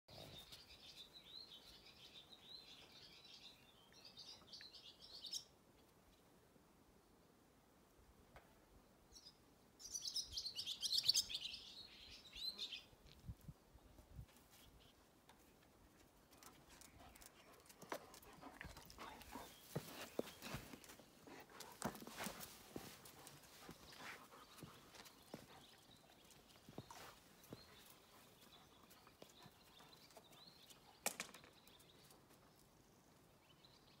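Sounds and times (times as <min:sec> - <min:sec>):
songbird chirping and trilling: 0:09.1 - 0:13.0.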